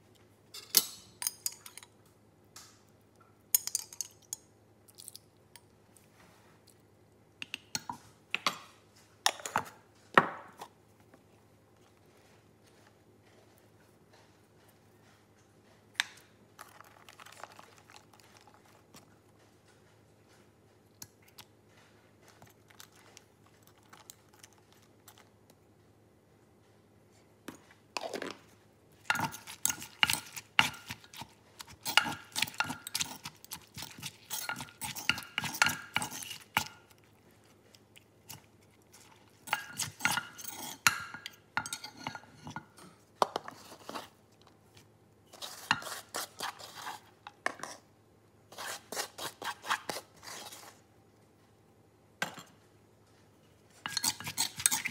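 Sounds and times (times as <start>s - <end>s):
metal spoon scraping and clinking: 29.0s - 36.8s, 39.0s - 42.9s, 53.8s - 54.9s.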